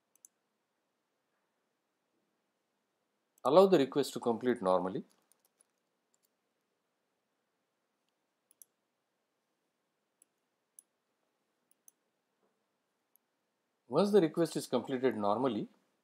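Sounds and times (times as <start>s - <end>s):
computer mouse clicks: 0.1s - 0.4s, 5.1s - 6.4s, 8.0s - 8.8s, 11.7s - 12.0s.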